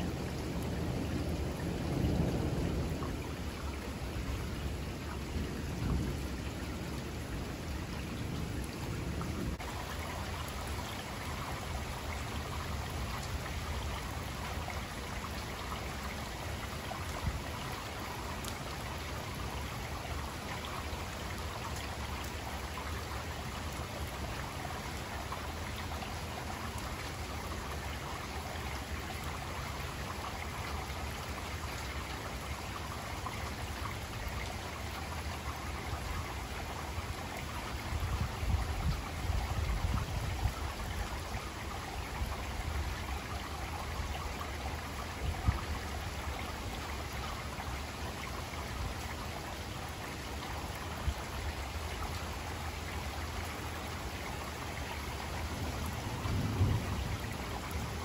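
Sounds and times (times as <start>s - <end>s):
low rumble of thunder: 0.0s - 26.8s, 35.6s - 47.7s, 55.0s - 58.0s
steady rain falling: 0.0s - 58.0s.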